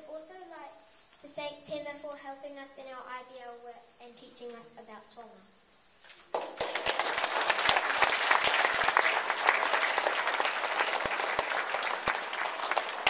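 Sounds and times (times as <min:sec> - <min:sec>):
audience applauding: 0:06.3 - 0:13.0.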